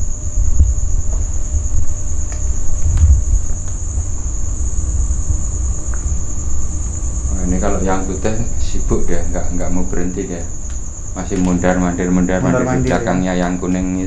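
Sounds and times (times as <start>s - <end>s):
crickets chirring: 0.0s - 14.0s
low microphone rumble: 0.0s - 14.0s
faint clicks: 10.6s - 11.6s.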